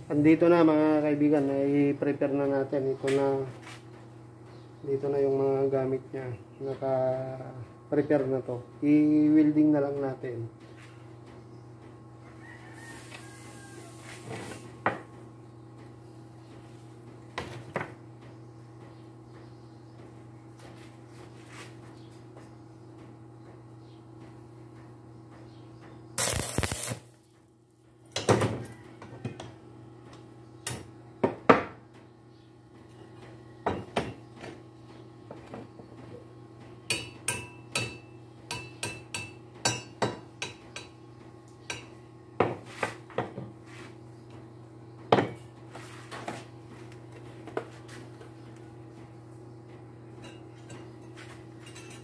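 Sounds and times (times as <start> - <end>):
welding arc crackling: 26.2 - 27.3.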